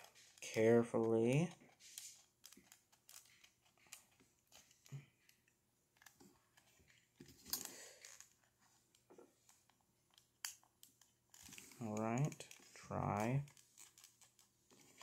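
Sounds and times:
plastic model clicking: 10.1s - 12.7s.

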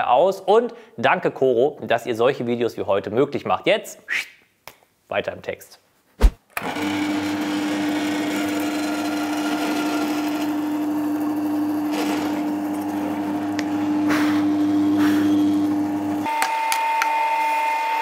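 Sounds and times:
mortising bit cutting wood: 6.6s - 15.9s
drill press motor humming: 6.6s - 16.3s.

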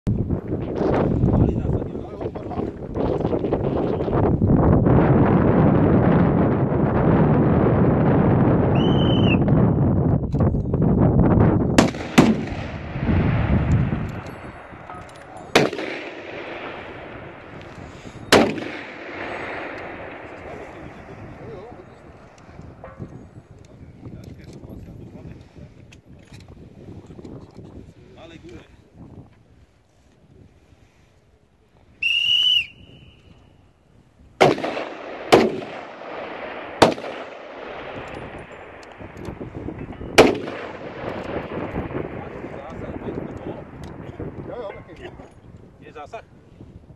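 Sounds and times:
wind buffeting microphone: 0.1s - 46.9s
rifle shots with echo: 11.7s - 23.4s, 34.4s - 45.0s.

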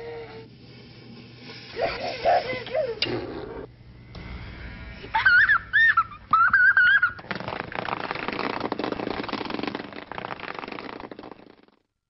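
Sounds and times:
rough hissing noise: 0.4s - 3.1s
toddler squealing with laughter: 5.1s - 7.2s.

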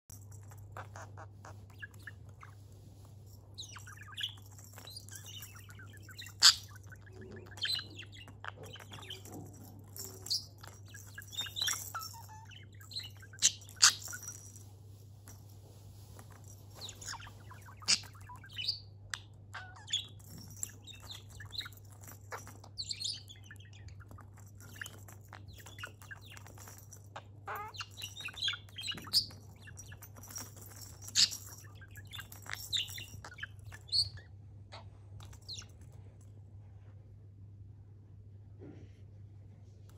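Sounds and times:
toy balls clicking and rattling: 0.0s - 34.3s, 35.1s - 36.3s.

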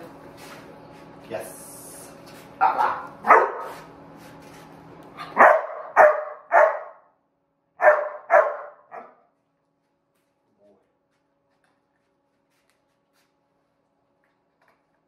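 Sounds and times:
dog barking sharply: 2.6s - 3.8s, 5.2s - 7.1s, 7.8s - 9.2s.

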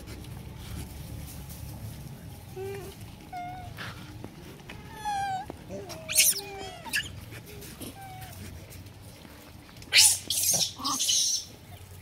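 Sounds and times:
harsh monkey calls: 5.0s - 7.2s, 9.9s - 11.6s
monkey squeak: 6.1s - 7.1s, 9.9s - 11.4s.

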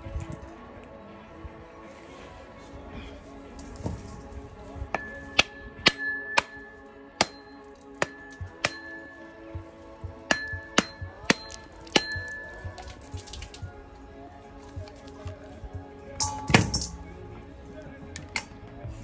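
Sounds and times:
background music: 0.0s - 19.0s
axe knocking coconut: 10.3s - 12.8s.

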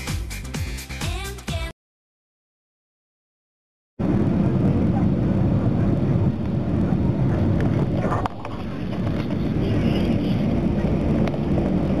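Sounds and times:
jet engines rumbling in cabin: 4.0s - 12.0s.

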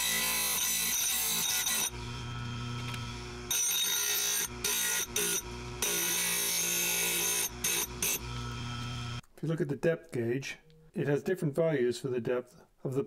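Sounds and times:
motor and spinning wheel hum: 0.0s - 9.2s.

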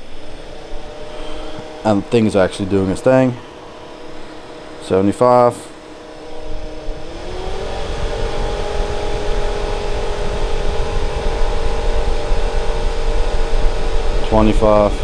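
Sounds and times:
blower fan motor whining: 0.0s - 15.0s
low rush of air: 5.7s - 14.4s.

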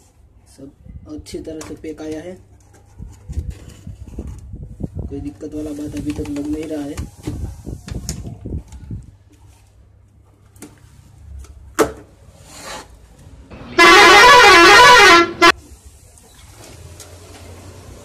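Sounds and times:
vehicle horn: 13.6s - 15.6s.

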